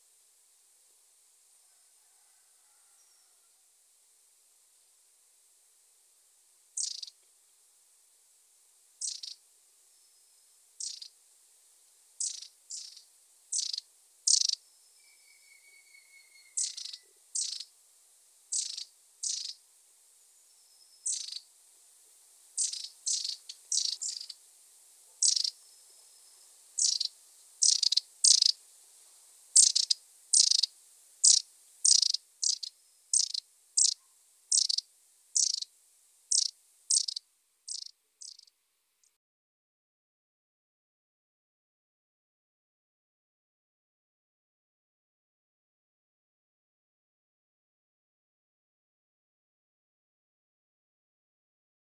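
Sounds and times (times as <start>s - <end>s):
high thin bird call notes: 12.2s - 17.7s, 20.5s - 21.5s, 22.6s - 24.4s, 25.2s - 28.6s, 29.6s - 35.7s, 36.3s - 38.5s
faint thin whistle: 14.6s - 17.0s.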